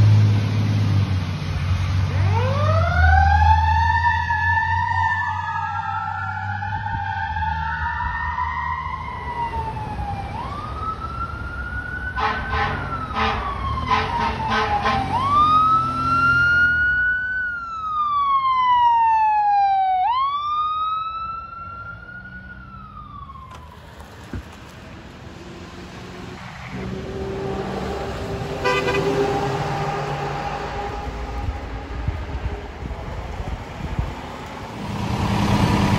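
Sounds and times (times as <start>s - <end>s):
truck rumble: 0.0s - 35.9s
fire truck siren wailing: 2.0s - 35.9s
short rapid siren blasts: 12.0s - 23.8s, 27.1s - 32.1s
low steady horn tone: 12.2s - 15.1s, 28.6s - 31.4s.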